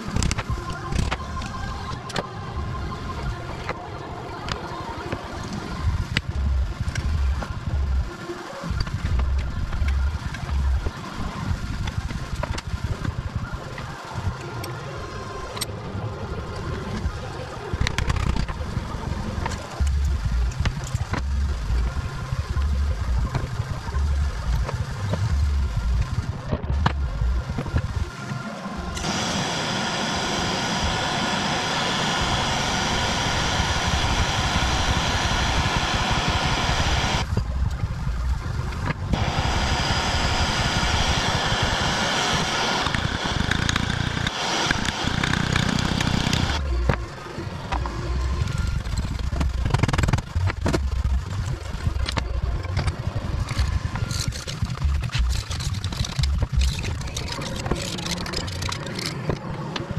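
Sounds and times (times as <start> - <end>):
power tool running: 28.9 - 37.3, 39.1 - 51.3.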